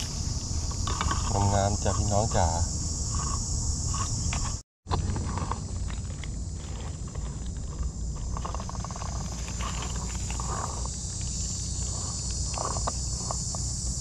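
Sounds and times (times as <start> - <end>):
high-pitched insect drone: 0.0 - 14.0
rustles and clicks: 2.8 - 13.8.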